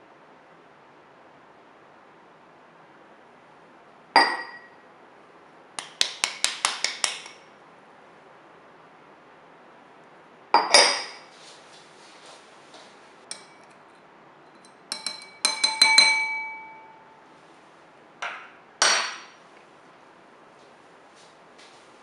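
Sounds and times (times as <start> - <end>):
metal spoon clinking in bowl: 4.2 - 4.7, 13.3 - 17.1.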